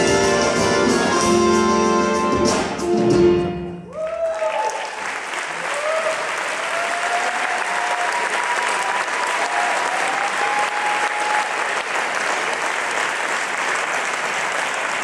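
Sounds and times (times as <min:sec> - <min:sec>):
audience applauding: 0:03.9 - 0:15.0.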